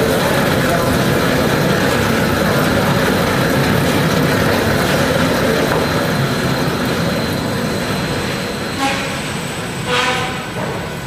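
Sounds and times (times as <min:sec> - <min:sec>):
wrapping turntable running: 0:00.0 - 0:09.8
faint high whine: 0:00.0 - 0:11.0.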